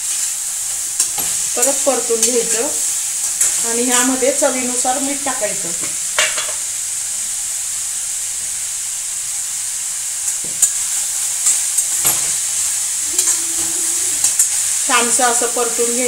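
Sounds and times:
vegetables sizzling in oil: 0.0s - 16.0s
metal spatula scraping pan: 13.1s - 14.8s.

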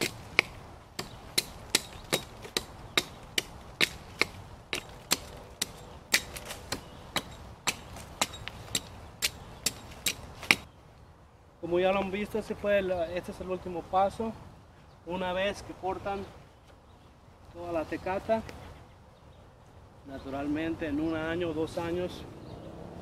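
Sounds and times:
hatchet chopping tree trunk: 0.0s - 10.7s.

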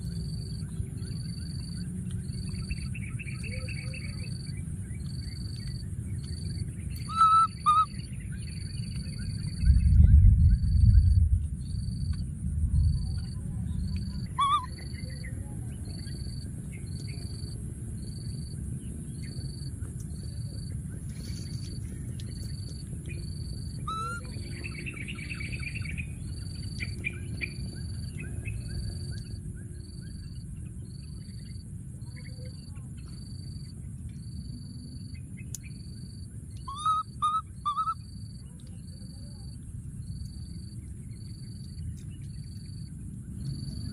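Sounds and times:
low rumbling noise: 0.0s - 32.6s
baby monkey squeak call: 7.1s - 7.9s, 14.3s - 14.9s, 23.8s - 24.3s, 36.6s - 38.0s
repeating high chirp: 7.1s - 7.9s, 14.3s - 14.8s.

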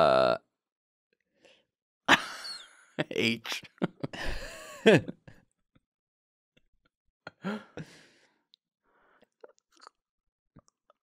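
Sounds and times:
person sighing: 7.3s - 8.2s.

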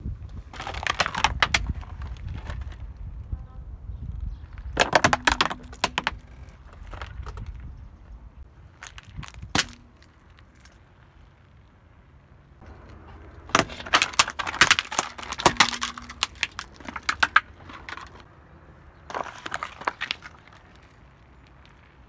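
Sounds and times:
tyre crushing plastic: 0.3s - 2.9s, 4.6s - 7.6s, 8.8s - 10.8s, 13.4s - 18.2s, 19.1s - 21.8s
tyre crushing cardboard boxes: 0.5s - 2.8s, 4.8s - 7.4s, 8.8s - 10.2s, 13.5s - 18.2s, 19.1s - 20.8s.

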